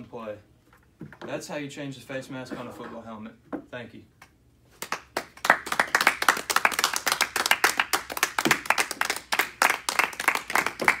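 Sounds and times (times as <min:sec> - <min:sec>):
audience applauding: 0:04.8 - 0:11.0.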